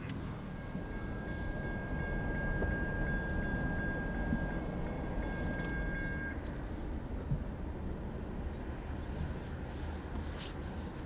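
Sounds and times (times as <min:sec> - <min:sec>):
crossing bell ringing: 0:00.3 - 0:06.6.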